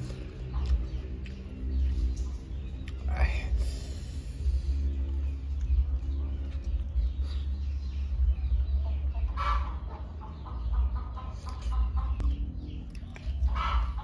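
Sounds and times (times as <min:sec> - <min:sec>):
steady low rumble: 0:00.0 - 0:14.0
chicken clucking: 0:05.7 - 0:14.0.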